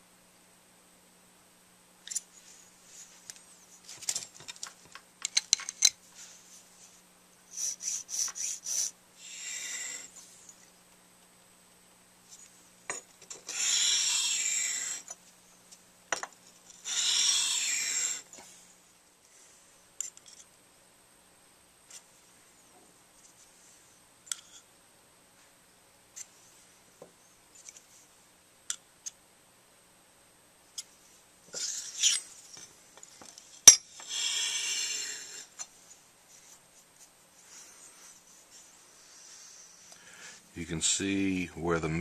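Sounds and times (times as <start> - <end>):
tools clicking and tapping: 4.4 - 6.0, 33.0 - 33.9
mouthpiece scraping on abrasive paper: 7.5 - 10.2, 13.4 - 15.2, 16.7 - 18.3, 31.6 - 32.3, 34.0 - 35.6.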